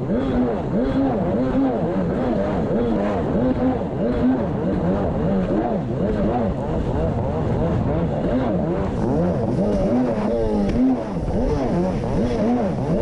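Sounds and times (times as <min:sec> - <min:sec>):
jet ski engine running: 0:00.0 - 0:13.0.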